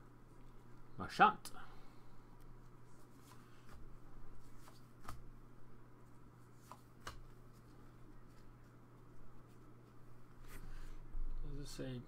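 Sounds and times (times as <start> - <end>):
low steady hum: 0.0 - 12.0
cards sliding and flicking: 3.2 - 5.3, 6.5 - 8.4.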